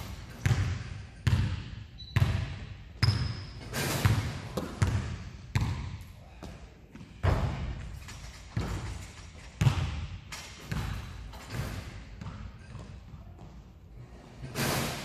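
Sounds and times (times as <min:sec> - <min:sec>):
basketball bouncing on hardwood floor: 0:00.4 - 0:03.4, 0:04.0 - 0:06.4, 0:08.6 - 0:09.0, 0:09.6 - 0:13.6
basketball hitting hoop: 0:00.4 - 0:06.0, 0:09.6 - 0:12.9.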